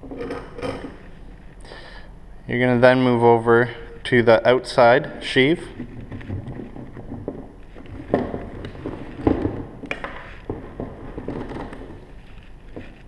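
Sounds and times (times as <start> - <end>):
rope rubbing and sliding: 10.1 - 13.0.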